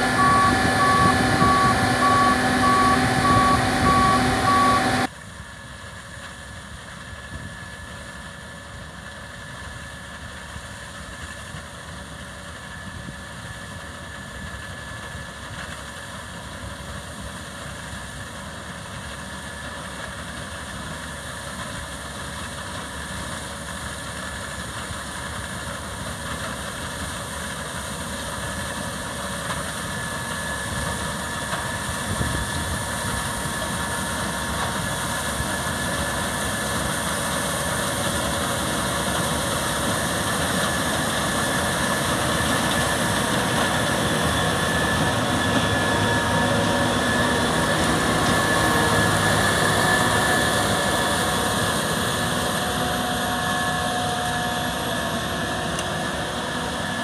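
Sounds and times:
high steady whine: 0:00.0 - 0:05.3, 0:21.8 - 0:57.0
combine harvester running: 0:00.0 - 0:57.0.

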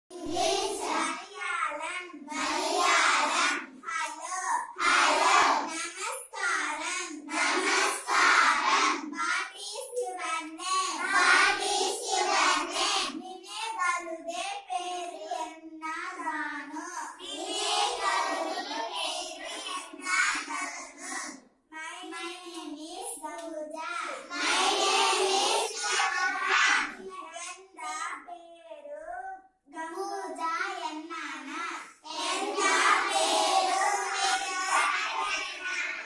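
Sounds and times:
children chanting in unison: 0:00.1 - 0:01.3, 0:02.2 - 0:05.8, 0:06.4 - 0:09.1, 0:10.7 - 0:13.2, 0:17.2 - 0:21.4, 0:24.0 - 0:27.0, 0:31.3 - 0:36.0.

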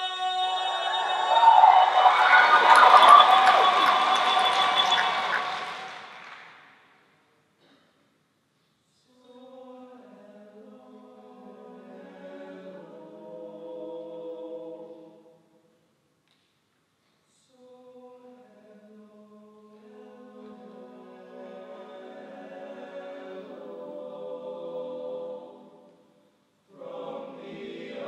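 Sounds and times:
men's choir singing a cappella: 0:00.0 - 0:06.0, 0:09.2 - 0:15.3, 0:17.8 - 0:26.0, 0:26.7 - 0:28.0.

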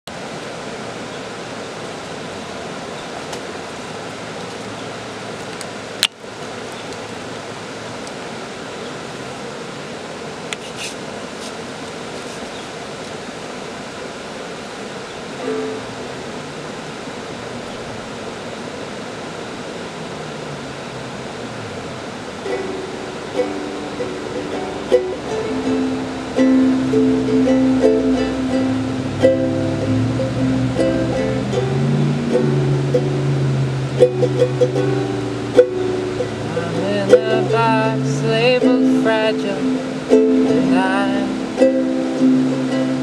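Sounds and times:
creek flowing over rocks: 0:00.0 - 0:43.0
plucked ukulele notes: 0:15.4 - 0:16.5, 0:22.4 - 0:43.0.

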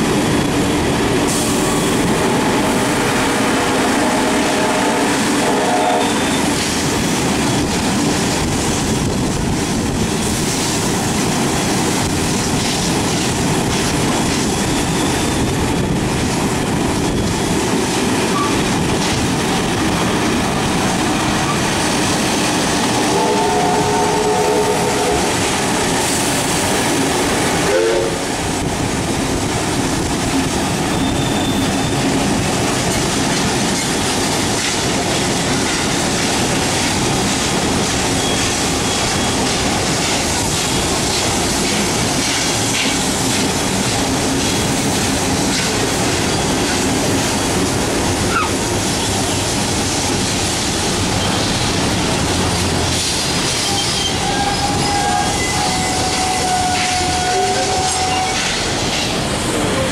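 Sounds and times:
train wheels rushing on rails: 0:00.0 - 0:59.9
steam whistle: 0:03.4 - 0:06.5, 0:23.0 - 0:25.4, 0:27.6 - 0:28.4, 0:53.6 - 0:58.6.

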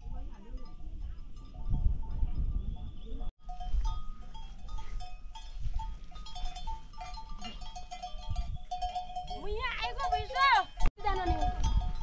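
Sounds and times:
livestock bells clinking: 0:00.0 - 0:12.0.

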